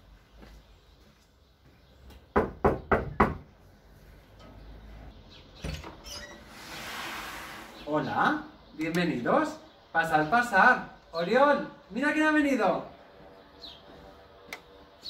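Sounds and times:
knocks on wooden door: 2.3 - 3.5.

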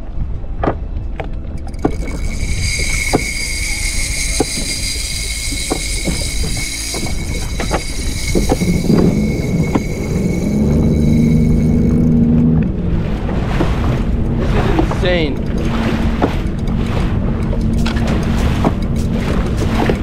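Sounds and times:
wind on microphone: 0.0 - 20.0
water noise: 1.2 - 20.0
fishing reel whine: 1.5 - 12.6
watercraft engine idling: 1.5 - 20.0.

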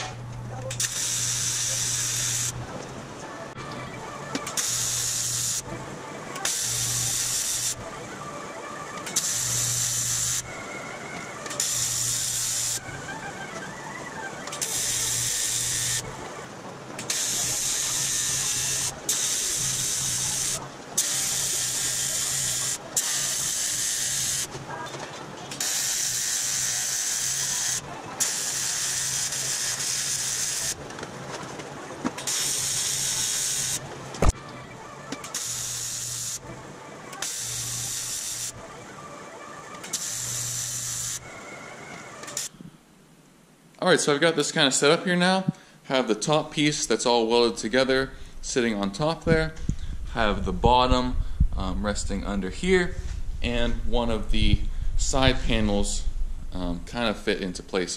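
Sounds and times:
welding arc buzzing hiss: 0.0 - 2.6, 4.4 - 5.7, 6.4 - 7.8, 9.1 - 10.6, 11.6 - 12.9, 14.6 - 16.2, 17.0 - 24.6, 25.5 - 30.8, 32.2 - 34.4, 35.2 - 36.4, 37.2 - 38.6, 39.8 - 41.3, 42.2 - 42.6.

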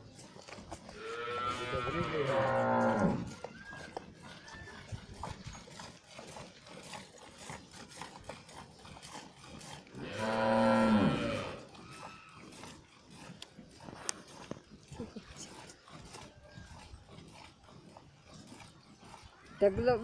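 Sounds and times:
cow mooing: 1.0 - 3.9, 9.9 - 12.4.

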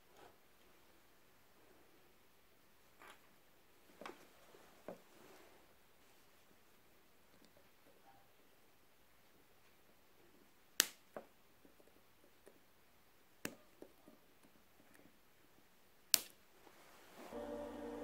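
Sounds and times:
plastic snaps: 16.1 - 16.4.

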